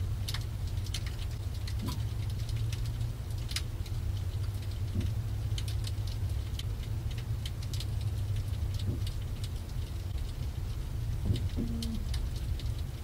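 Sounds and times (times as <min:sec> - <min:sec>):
crackles and pops: 0:00.0 - 0:13.0
fish calling underwater low hum: 0:11.6 - 0:12.2.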